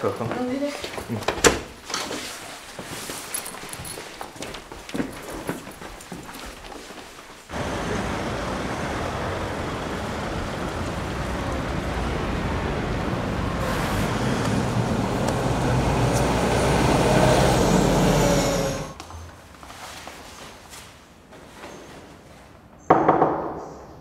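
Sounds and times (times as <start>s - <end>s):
bus engine rumbling: 7.5s - 19.0s
city street traffic: 7.5s - 19.4s.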